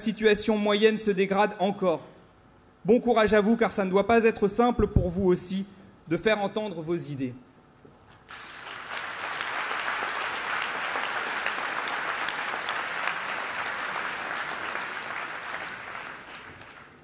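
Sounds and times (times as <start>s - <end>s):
large audience applauding: 8.3s - 17.0s.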